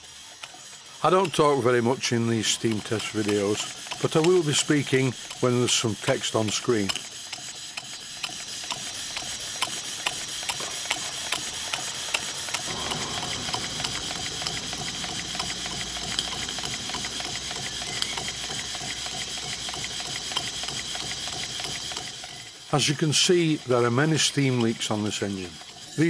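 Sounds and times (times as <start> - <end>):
steam engine clicking beat: 0.0 - 26.0
steam hissing: 0.0 - 26.0.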